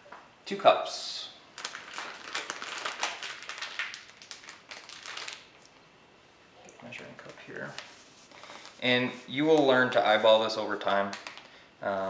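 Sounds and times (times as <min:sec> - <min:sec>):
plastic bag crinkling: 0:01.6 - 0:05.7, 0:06.8 - 0:08.9, 0:09.5 - 0:11.6.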